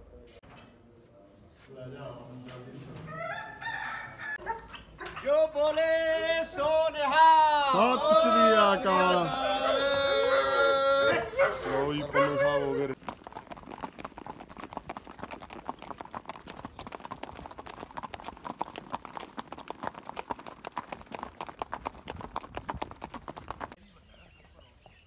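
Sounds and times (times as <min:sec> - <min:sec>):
horse hoofbeats: 0:04.6 - 0:23.8.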